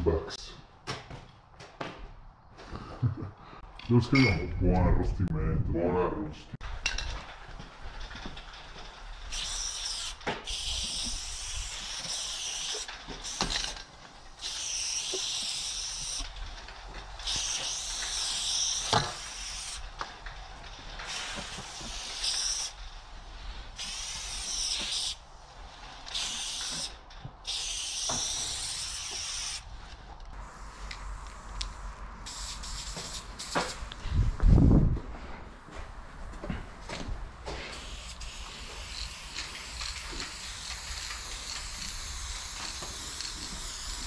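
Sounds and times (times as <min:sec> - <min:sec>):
aerosol spray can hissing: 0:09.3 - 0:13.7, 0:14.4 - 0:16.2, 0:17.2 - 0:19.8, 0:21.1 - 0:22.8, 0:23.8 - 0:25.2, 0:26.1 - 0:29.6, 0:32.2 - 0:33.9, 0:37.7 - 0:44.0.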